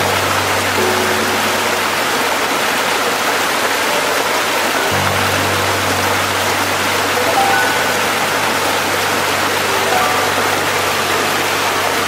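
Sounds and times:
stream rushing over stones: 0:00.0 - 0:12.0
soft background music: 0:04.0 - 0:12.0.

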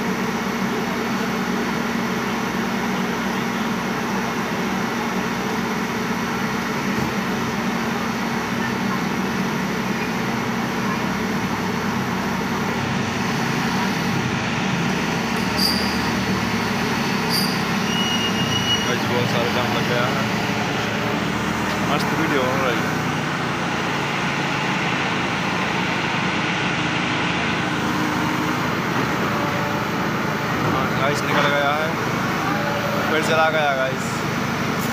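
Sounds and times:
heavy diesel engine under load: 0:00.0 - 0:34.9
high chirps: 0:15.4 - 0:16.2.

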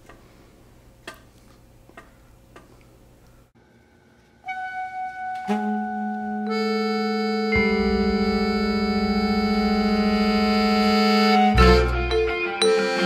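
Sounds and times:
sustained chord of held tones: 0:04.7 - 0:13.0.

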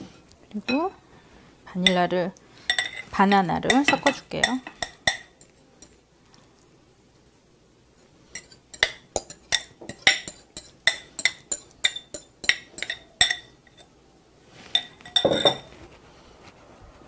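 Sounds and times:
fork clinking on glass bowl: 0:02.7 - 0:03.1, 0:03.7 - 0:06.0, 0:08.3 - 0:13.9, 0:14.7 - 0:15.7
glass clatter: 0:14.8 - 0:15.7.

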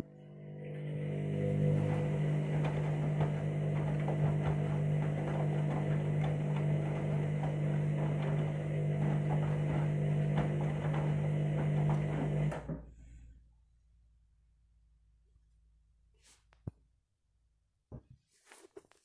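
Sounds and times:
washing machine motor hum: 0:00.0 - 0:13.6
wet laundry sloshing and knocking: 0:01.2 - 0:12.8.

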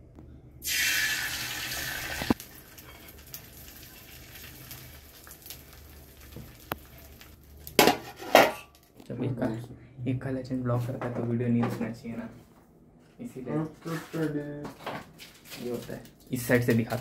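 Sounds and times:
egg sizzling on hot pan: 0:00.6 - 0:08.4.

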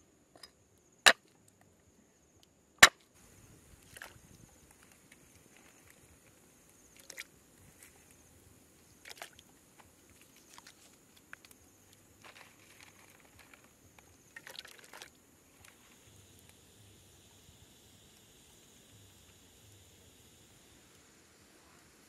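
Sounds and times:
low steady hiss: 0:00.0 - 0:22.0
small splashes and knocks: 0:03.8 - 0:08.2, 0:08.8 - 0:15.8.

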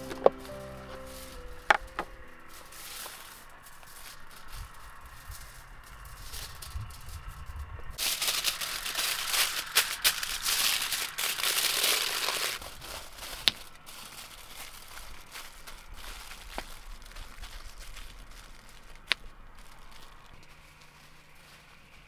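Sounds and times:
low handling rumble: 0:00.0 - 0:08.0
small dry pieces rattling in container: 0:08.0 - 0:18.9.

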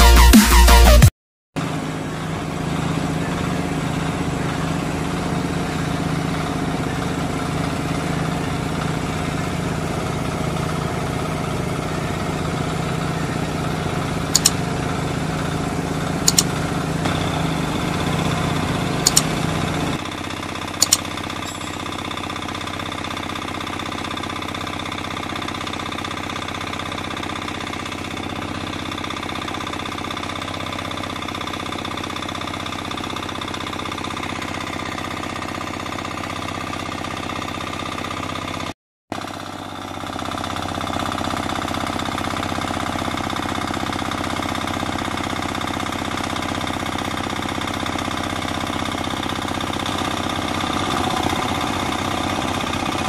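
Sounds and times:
engine running: 0:01.6 - 0:53.0
engine-driven water pump running: 0:01.6 - 0:53.0
short sharp clicks: 0:14.4 - 0:14.6, 0:16.3 - 0:16.5, 0:19.1 - 0:19.3, 0:20.8 - 0:21.1.

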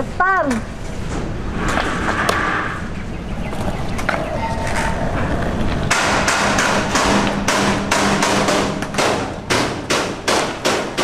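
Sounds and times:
sharp knocks: 0:05.9 - 0:11.0.

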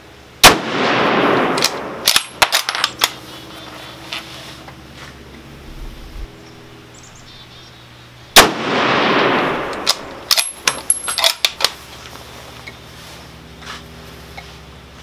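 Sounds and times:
rifle shot with echo: 0:00.4 - 0:02.5, 0:08.4 - 0:10.4.

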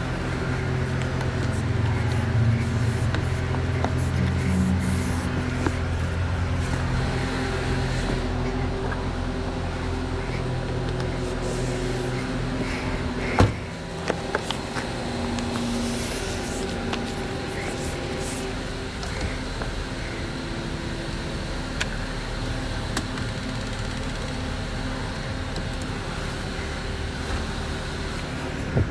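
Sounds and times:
low mechanical hum: 0:00.0 - 0:28.9.

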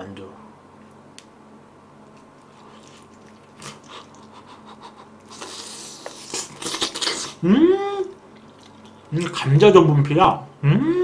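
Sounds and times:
person chewing: 0:02.2 - 0:07.4, 0:08.0 - 0:09.2
hissing slurp of noodles: 0:05.3 - 0:07.4.

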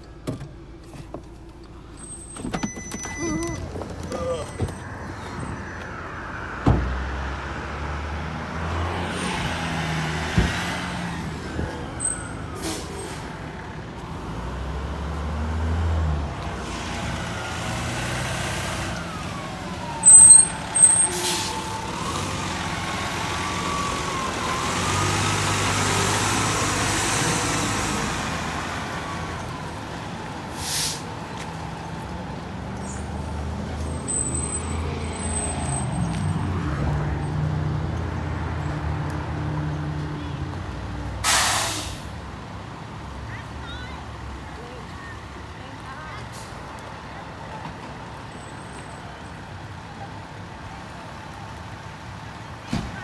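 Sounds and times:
fire engine rumbling: 0:00.0 - 0:53.0
air-brake hisses: 0:30.6 - 0:31.0, 0:41.2 - 0:42.1.

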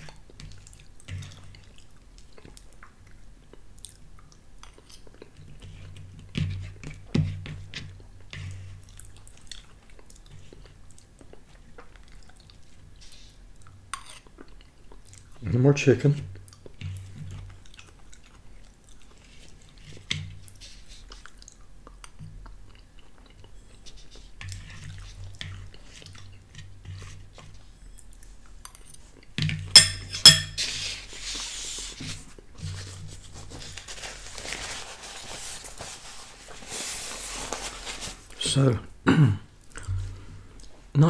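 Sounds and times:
quiet chewing: 0:00.0 - 0:07.0, 0:07.8 - 0:15.4, 0:16.3 - 0:29.4, 0:39.6 - 0:40.9
metal fork clinking on ceramic bowl: 0:29.8 - 0:30.6
paper napkin crumpling: 0:32.6 - 0:38.6.

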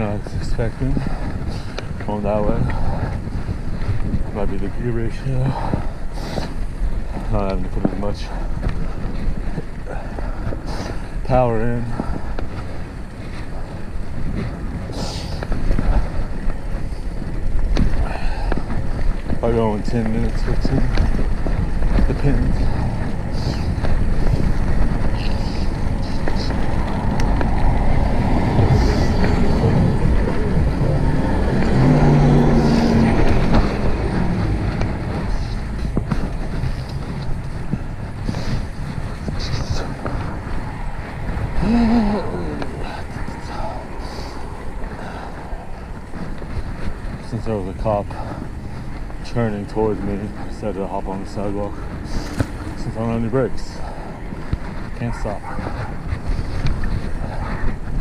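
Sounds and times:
bicycle rolling on street: 0:00.0 - 0:58.0
bike wheels knocking: 0:00.0 - 0:58.0
wind buffeting microphone: 0:00.0 - 0:58.0
car engine humming past: 0:22.5 - 0:50.4.

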